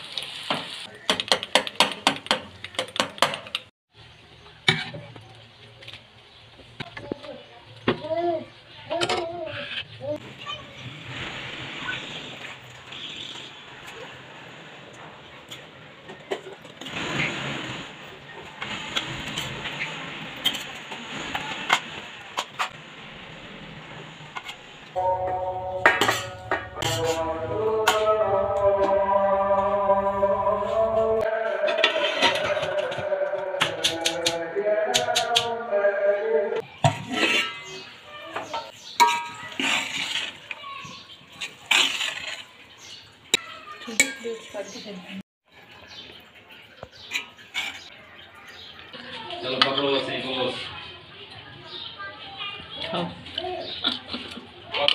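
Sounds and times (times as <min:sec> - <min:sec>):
spoons scraping steel pots: 0:24.4 - 0:28.2, 0:31.4 - 0:34.4, 0:36.8 - 0:43.0, 0:47.0 - 0:48.0.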